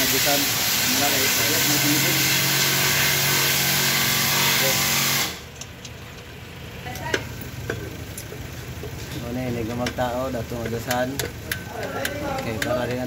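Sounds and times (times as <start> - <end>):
loud steady hiss: 0.0 - 3.9.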